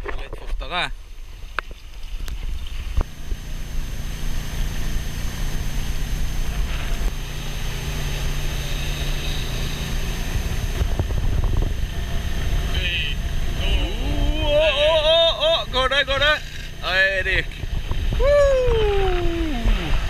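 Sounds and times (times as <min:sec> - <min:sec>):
outboard motor running: 0:00.0 - 0:20.0
wind on microphone: 0:10.3 - 0:12.6, 0:17.4 - 0:20.0.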